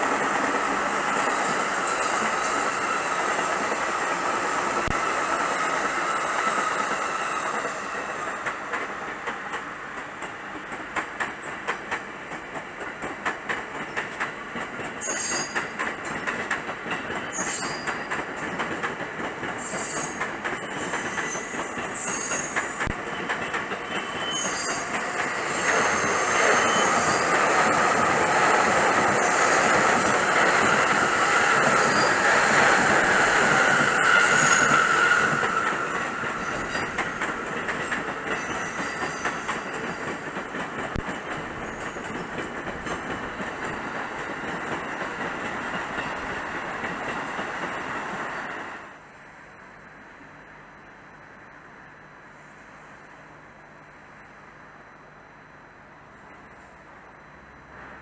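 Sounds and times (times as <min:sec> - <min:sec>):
rail clicks: 0:00.0 - 0:49.0
electric train passing: 0:00.0 - 0:58.0
high wheel squeal: 0:15.0 - 0:15.8, 0:17.3 - 0:18.1, 0:19.6 - 0:23.2, 0:23.8 - 0:27.8, 0:29.1 - 0:40.2.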